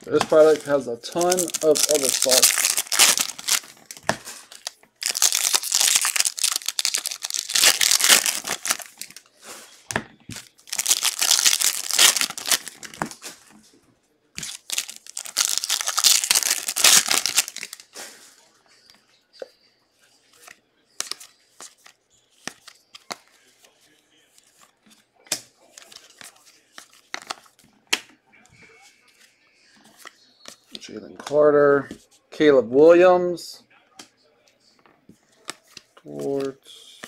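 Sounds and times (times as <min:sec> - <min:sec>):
plastic wrapper crinkling and tearing: 0:00.0 - 0:09.2, 0:10.3 - 0:13.2, 0:14.4 - 0:17.8.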